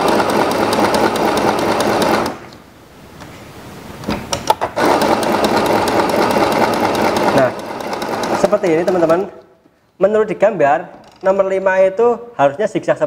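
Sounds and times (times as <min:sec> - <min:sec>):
sewing machine stitching: 0:00.0 - 0:02.5, 0:04.6 - 0:09.4.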